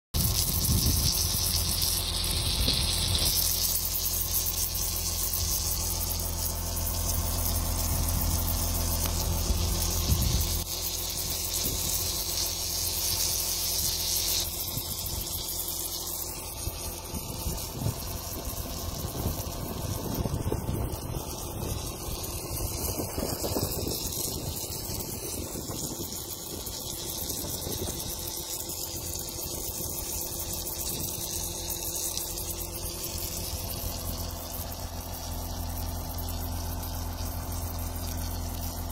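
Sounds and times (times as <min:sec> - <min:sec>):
diesel engine running: 0:00.2 - 0:38.9
hiss: 0:00.2 - 0:38.9.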